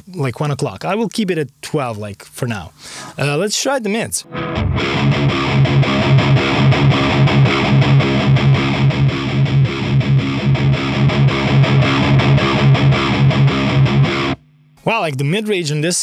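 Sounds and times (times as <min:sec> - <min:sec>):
distorted electric guitar riff: 0:04.2 - 0:14.9.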